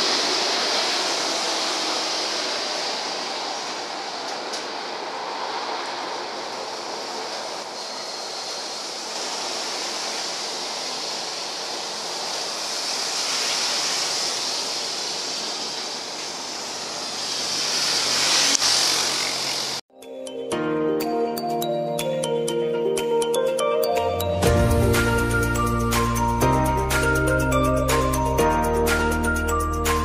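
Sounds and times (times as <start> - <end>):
hiss of water spray: 0.0 - 19.8
jet engines roaring: 0.0 - 19.9.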